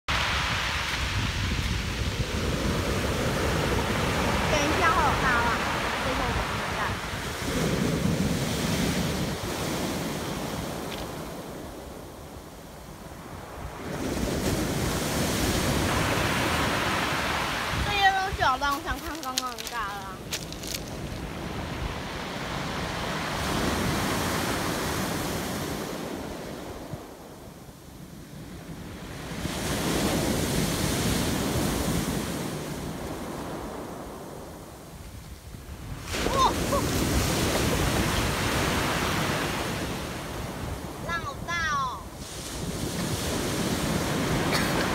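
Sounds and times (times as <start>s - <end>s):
waves breaking on pebble beach: 0.1s - 27.3s, 27.9s - 44.9s
wind buffeting microphone: 0.1s - 44.9s.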